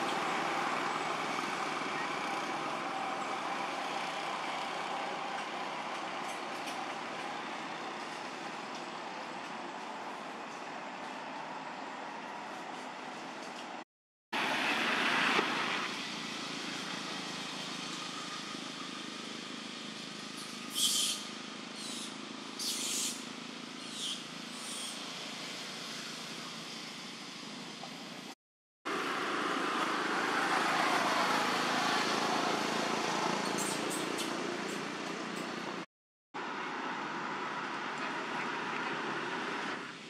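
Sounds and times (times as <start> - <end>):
outdoor background noise: 0.0 - 40.0
high hissy chirps: 20.4 - 27.0.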